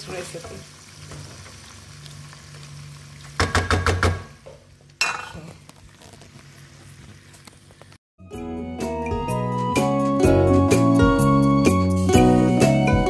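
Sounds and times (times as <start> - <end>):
sizzling: 0.0 - 8.0
music: 8.2 - 13.0.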